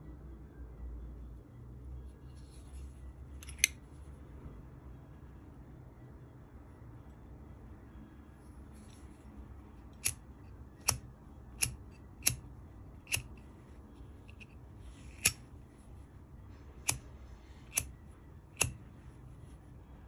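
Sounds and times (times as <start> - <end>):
metal lighter lid clicking open and shut: 3.4 - 3.8, 13.1 - 13.4, 15.1 - 15.4, 17.7 - 17.9.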